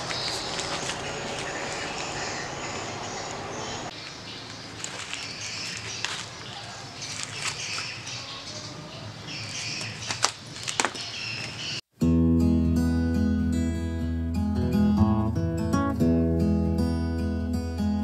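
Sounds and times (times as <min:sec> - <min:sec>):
birds chirping: 0:00.0 - 0:11.9.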